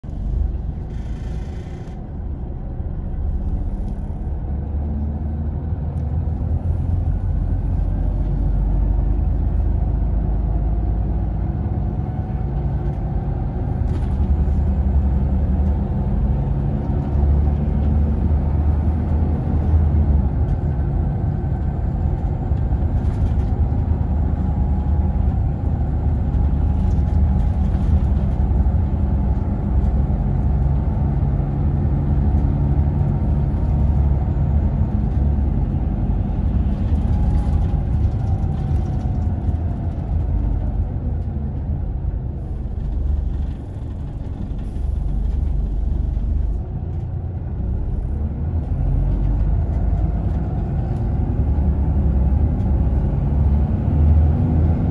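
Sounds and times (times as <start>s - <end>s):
bus engine and road rumble: 0.0s - 54.9s.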